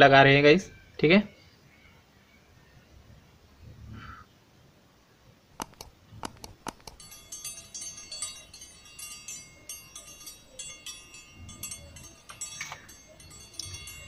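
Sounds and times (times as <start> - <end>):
sharp clicks: 5.6 - 7.2
tinkling bell chimes: 6.8 - 14.0.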